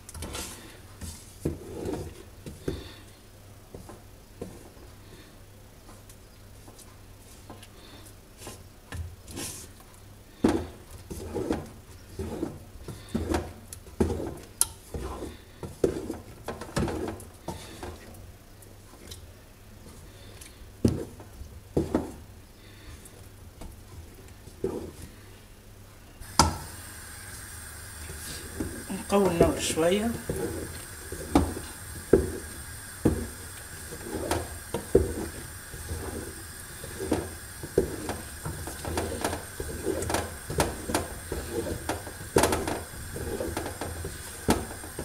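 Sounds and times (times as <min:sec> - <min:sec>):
wooden spoon scraping a metal pot: 0:00.0 - 0:03.1, 0:09.3 - 0:18.1, 0:24.5 - 0:25.3, 0:28.0 - 0:45.0
steady hiss: 0:26.2 - 0:45.0.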